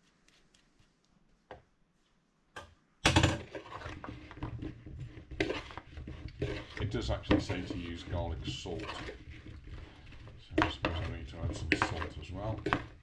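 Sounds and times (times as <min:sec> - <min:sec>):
metal spoon stirring in a bowl: 0:03.3 - 0:13.0.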